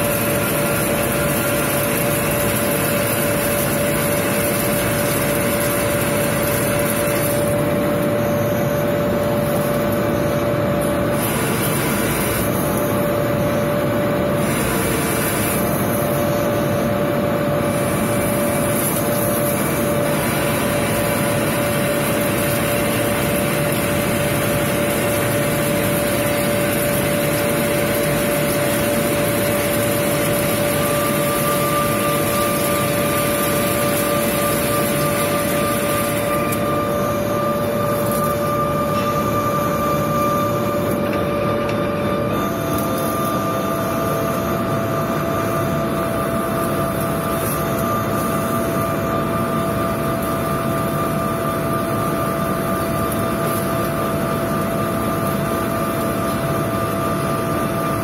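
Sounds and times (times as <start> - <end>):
lathe spindle humming: 0.0 - 43.5
high machine whine: 0.0 - 58.0.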